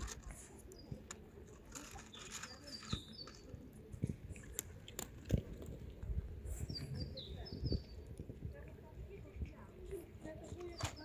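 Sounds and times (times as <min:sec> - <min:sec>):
high bird chirps: 0:02.1 - 0:03.6.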